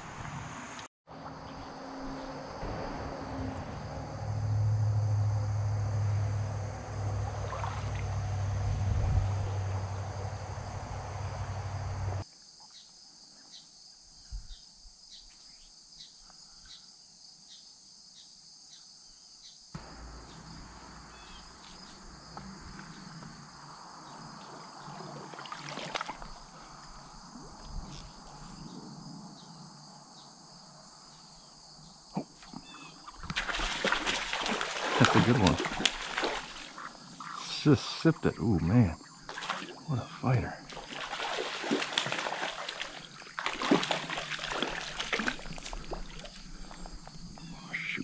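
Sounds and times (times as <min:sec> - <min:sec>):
insects chirring: 0:00.0 - 0:48.0
loud low rumble: 0:01.1 - 0:12.2.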